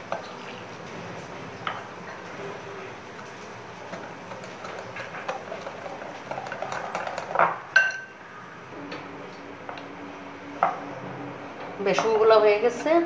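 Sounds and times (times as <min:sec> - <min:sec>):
batter being mixed by hand: 0:02.1 - 0:07.7
glass bowl clinking and ringing: 0:07.7 - 0:08.2.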